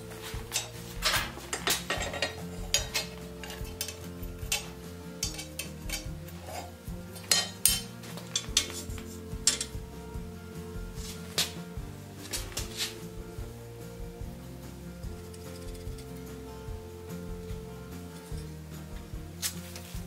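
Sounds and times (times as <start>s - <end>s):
quiet background music: 0.0s - 20.0s.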